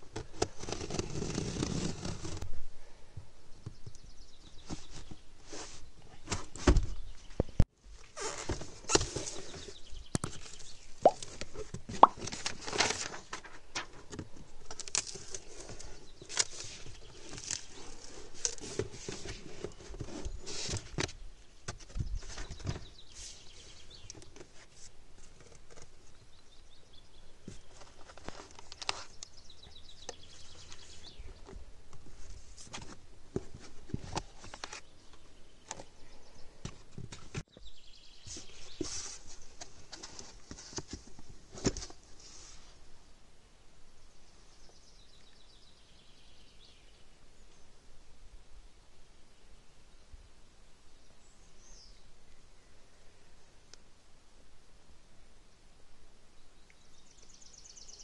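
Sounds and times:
cardboard and foam rustling: 0:00.1 - 0:02.5, 0:08.0 - 0:23.4, 0:38.3 - 0:42.7.

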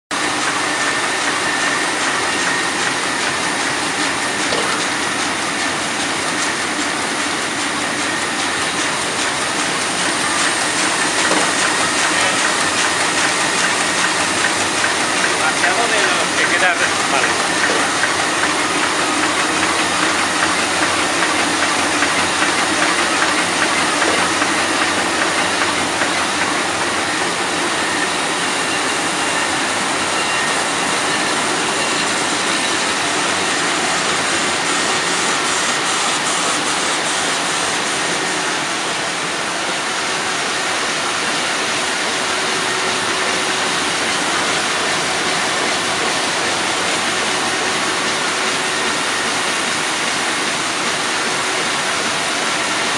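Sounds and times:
printing press mechanical din: 0:00.1 - 0:52.9.

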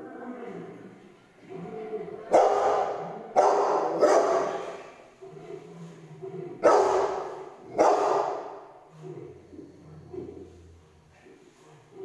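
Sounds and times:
dog barking loudly: 0:02.3 - 0:04.8, 0:06.6 - 0:08.6.

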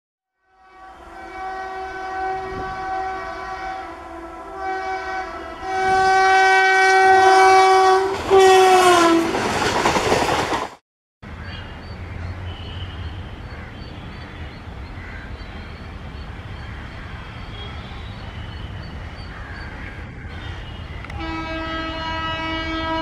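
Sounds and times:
train air horn blasts: 0:00.4 - 0:09.4, 0:20.3 - 0:23.0
train coaches rushing and rattling: 0:07.2 - 0:10.8.

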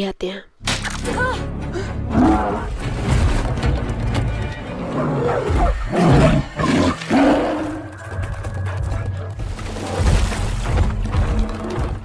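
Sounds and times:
bear roaring and growling: 0:02.1 - 0:02.8, 0:04.7 - 0:08.0.

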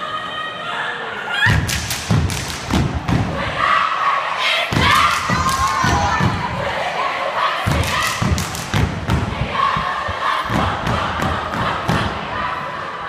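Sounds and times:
crowd shouting and cheering: 0:00.0 - 0:13.0
hands clapping: 0:01.6 - 0:02.7, 0:05.0 - 0:06.0, 0:07.8 - 0:08.9.

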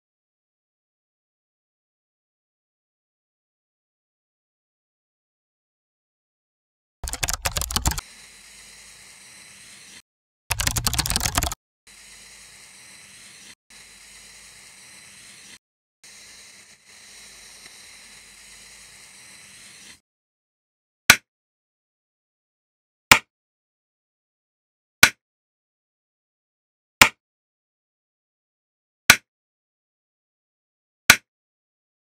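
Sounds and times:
pencil scratching on paper: 0:07.1 - 0:20.0.

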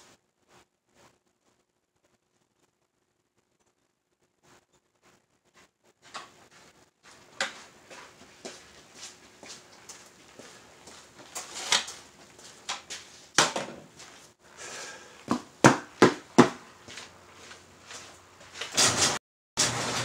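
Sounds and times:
knocks and clatter in garage: 0:15.2 - 0:17.1, 0:18.5 - 0:20.0.

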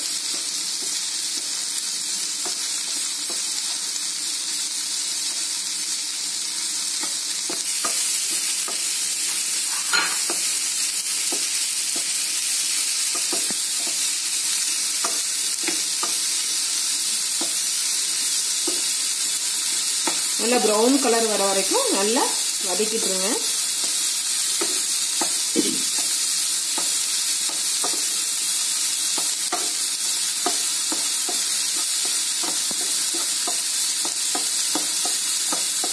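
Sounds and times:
onions sizzling in oil: 0:00.0 - 0:35.9.

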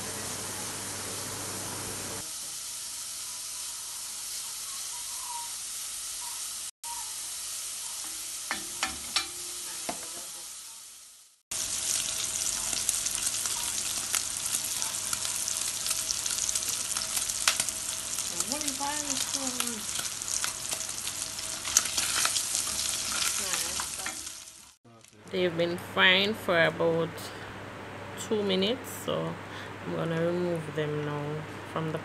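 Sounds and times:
bacon sizzling in a pot: 0:00.0 - 0:25.2.

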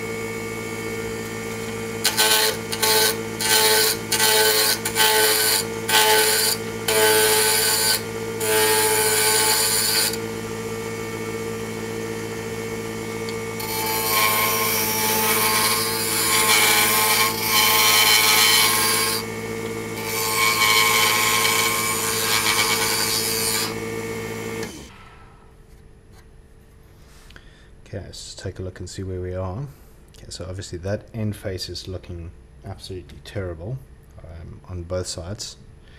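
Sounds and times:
lathe motor hum: 0:00.0 - 0:24.9
turning tool scraping wood: 0:01.2 - 0:10.2, 0:13.2 - 0:19.3, 0:20.0 - 0:23.8.

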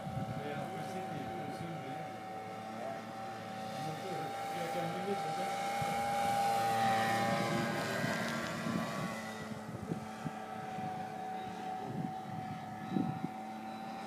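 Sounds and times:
model plane motor droning: 0:00.0 - 0:14.0.

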